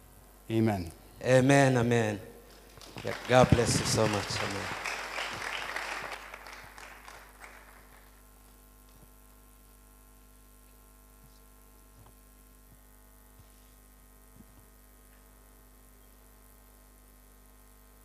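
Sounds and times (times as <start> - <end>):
faint electrical hum: 0.0 - 18.0
crowd applause: 2.5 - 8.2.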